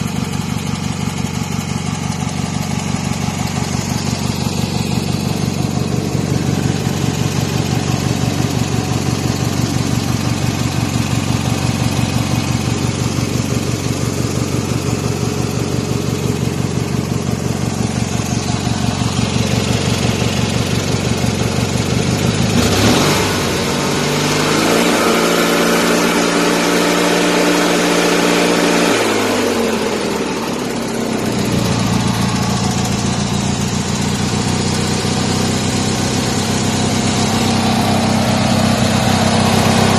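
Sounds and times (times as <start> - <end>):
garden tractor engine revving: 22.4 - 39.9.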